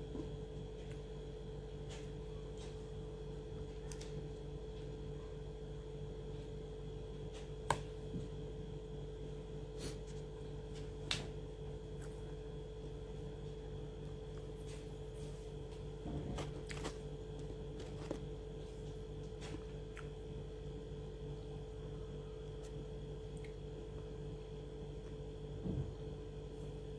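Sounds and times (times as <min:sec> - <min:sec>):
steady electrical hum: 0:00.0 - 0:26.9
person eating and chewing: 0:16.3 - 0:18.4.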